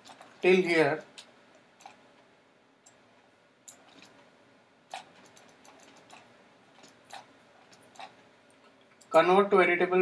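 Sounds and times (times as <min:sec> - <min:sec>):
computer mouse clicks: 0:02.8 - 0:03.0, 0:03.6 - 0:04.2, 0:04.9 - 0:09.2.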